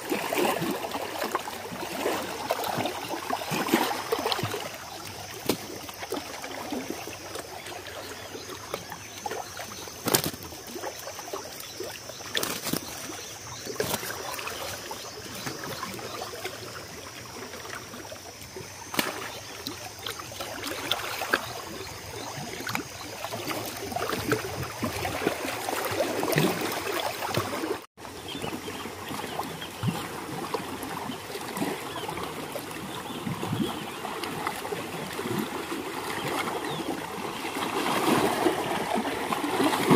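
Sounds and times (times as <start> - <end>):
waves lapping on rocks: 0.0 - 16.4, 28.7 - 39.9.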